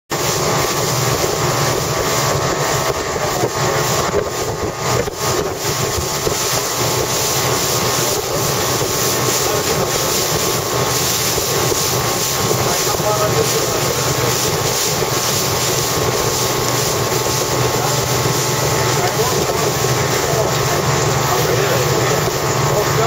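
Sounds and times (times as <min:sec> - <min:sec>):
motorboat engine drone: 0:00.1 - 0:23.0
rushing water: 0:00.1 - 0:23.0
wind buffeting microphone: 0:00.1 - 0:23.0.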